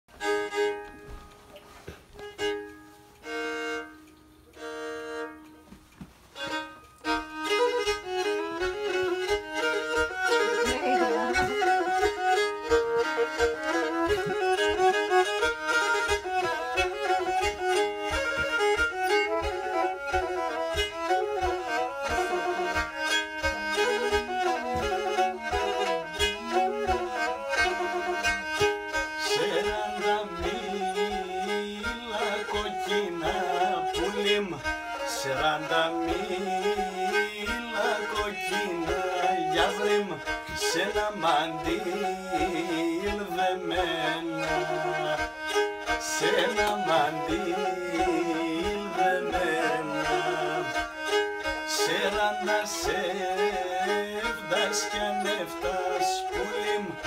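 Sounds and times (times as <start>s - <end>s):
bowed lyra melody: 6.3s - 57.0s.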